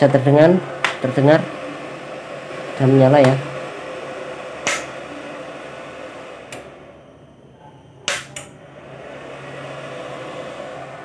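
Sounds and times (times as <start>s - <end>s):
welder cooling fan whirring: 0.0s - 11.0s
rocker power switch clicks: 4.6s - 5.0s, 8.0s - 8.6s.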